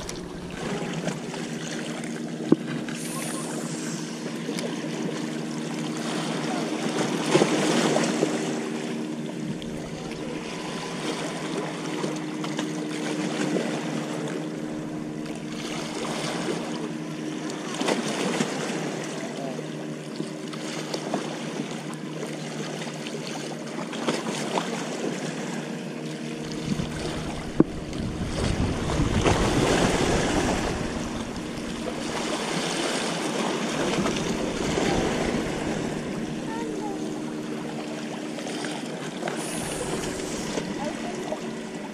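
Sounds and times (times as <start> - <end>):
small waves washing against rocks: 0.0 - 5.1, 26.3 - 41.9
steady engine drone: 0.0 - 41.9.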